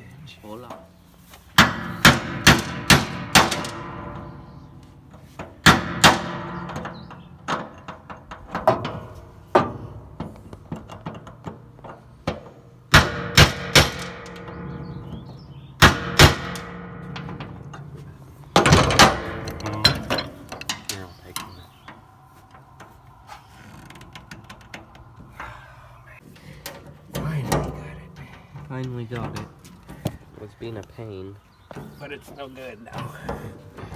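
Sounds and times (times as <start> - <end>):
metal ringing: 12.9 - 25.6.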